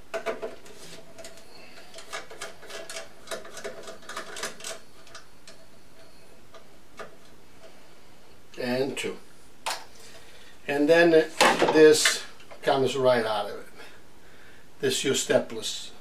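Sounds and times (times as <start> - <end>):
screwdriver clicking and scraping metal: 0.2 - 5.6.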